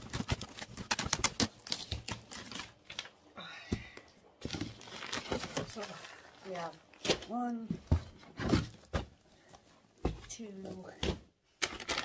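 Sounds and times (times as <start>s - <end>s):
packaging crackling and rustling: 0.0s - 3.2s, 4.4s - 7.3s
cardboard box being opened: 4.5s - 6.3s.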